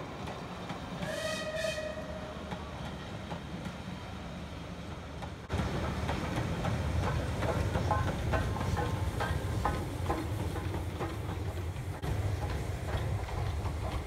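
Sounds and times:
train rumbling past on rails: 0.0s - 14.0s.

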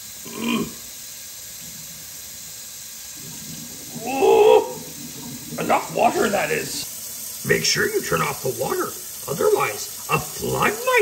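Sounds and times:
faucet filling kettle with water: 0.0s - 11.0s
hum-like vocal sound: 0.2s - 0.8s, 3.2s - 6.8s.

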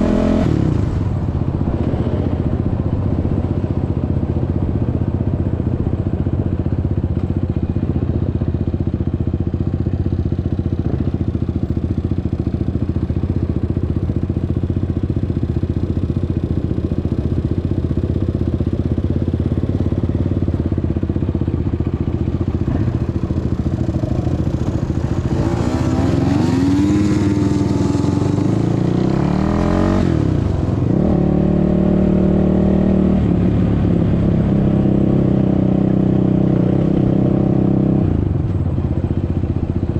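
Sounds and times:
quad bike engine revving: 0.0s - 1.1s, 21.8s - 38.6s.

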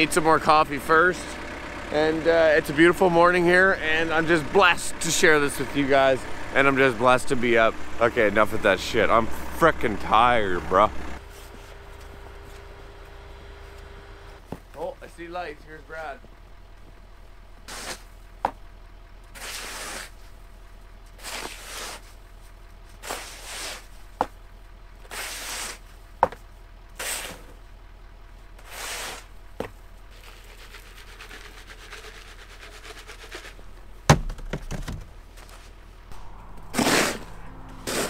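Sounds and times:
snow shovel scraping pavement: 17.7s - 18.2s, 19.4s - 20.4s, 21.2s - 22.2s, 22.9s - 24.1s, 25.0s - 25.9s, 27.0s - 27.6s, 28.6s - 29.3s, 36.8s - 38.0s
loud bang: 36.1s - 38.0s.

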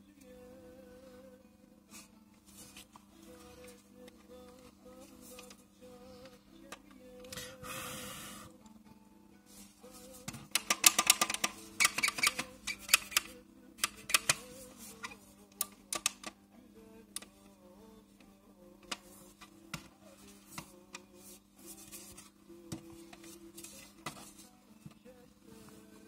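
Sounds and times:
faint steady hum: 0.0s - 26.0s
quiet background music: 0.0s - 26.0s
plastic lid mechanism clicking: 10.5s - 14.4s.

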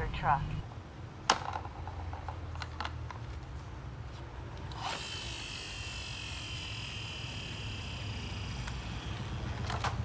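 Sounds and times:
high steady toy whir: 4.7s - 9.9s.

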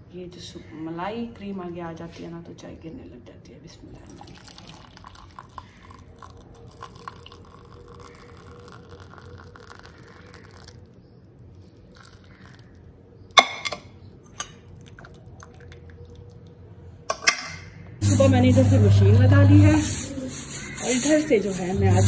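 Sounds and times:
tea trickling into mug: 3.9s - 16.7s
dripping from strainer: 4.0s - 10.9s, 11.8s - 12.8s.

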